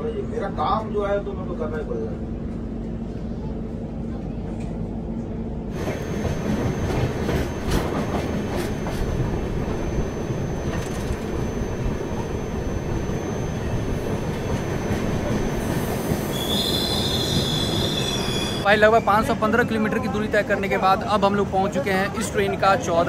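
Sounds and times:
high wheel squeal: 11.4s - 19.4s.

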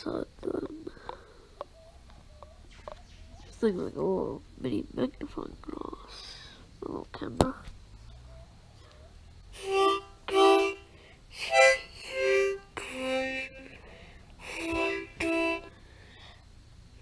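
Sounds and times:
harmonica chords: 9.5s - 15.9s.

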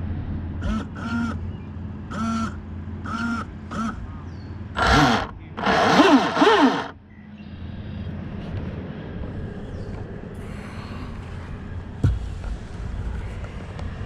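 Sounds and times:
bird calls: 1.0s - 4.7s.

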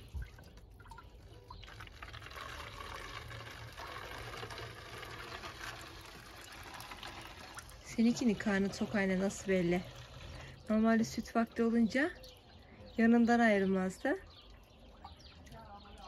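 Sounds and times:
milk trickling into bottle: 0.0s - 12.7s.

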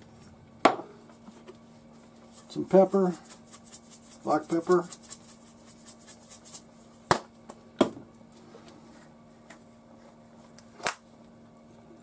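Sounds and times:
faint steady hum: 0.0s - 12.0s
spice shaker ticking: 2.3s - 6.7s.

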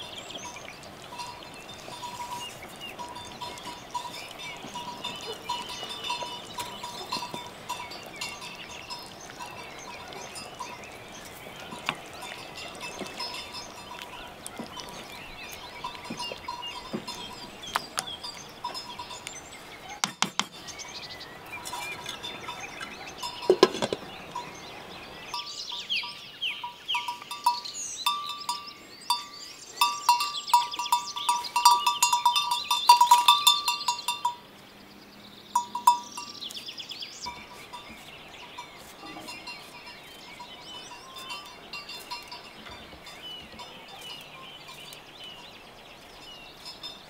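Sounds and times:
birds chirping: 0.0s - 47.0s.

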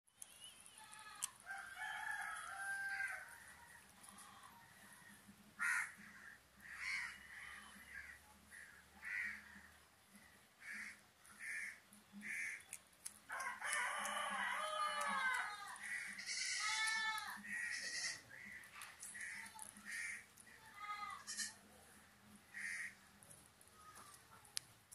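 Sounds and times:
animal calls: 14.3s - 21.6s.

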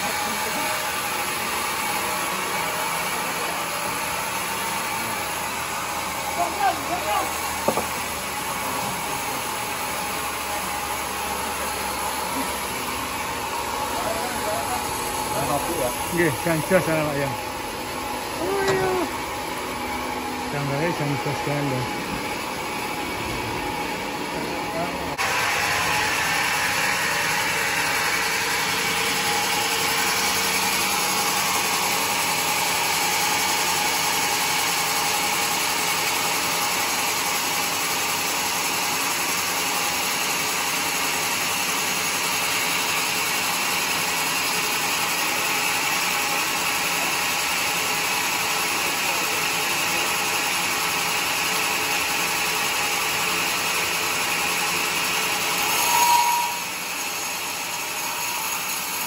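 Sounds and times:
band saw cutting log: 0.0s - 59.0s
high saw note: 55.6s - 57.7s.

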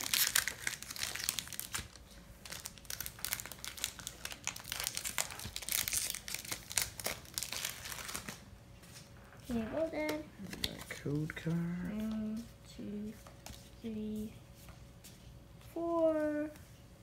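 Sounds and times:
foil wrapper crinkling: 0.0s - 8.4s.

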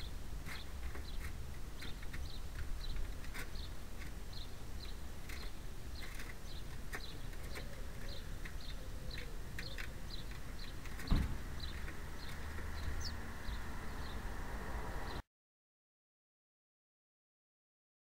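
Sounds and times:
sparrows chirping: 0.0s - 15.2s
thump: 11.0s - 11.5s.

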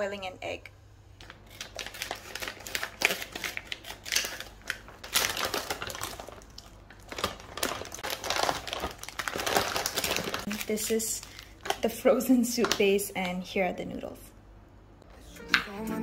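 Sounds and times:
plastic packaging crinkling: 1.2s - 13.4s.

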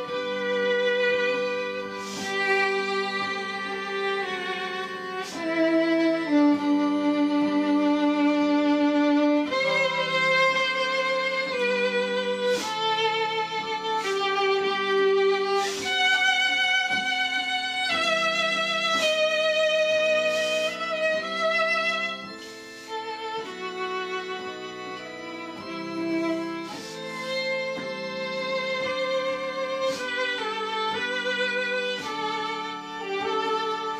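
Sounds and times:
soft sustained accompaniment: 0.0s - 33.9s
violin melody with vibrato: 0.0s - 33.9s.

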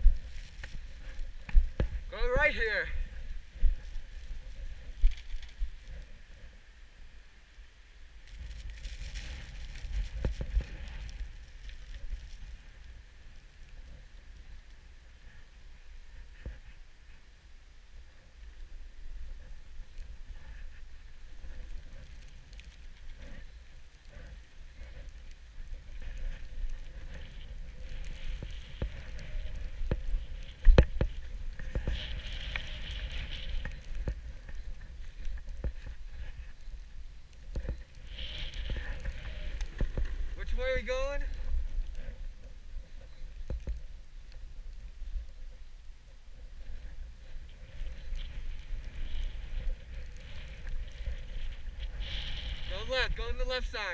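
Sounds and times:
wind rumbling on microphone: 0.0s - 53.9s
snowboard scraping over snow: 8.3s - 17.2s, 18.4s - 44.0s, 46.3s - 53.9s.

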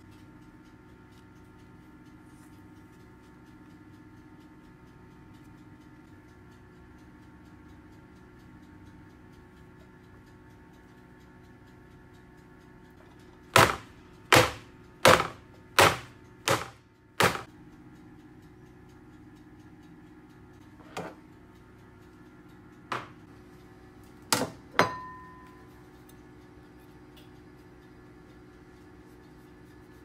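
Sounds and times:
metal cake pan knocking on counter: 24.4s - 25.1s
plate set down ringing: 24.4s - 25.3s.

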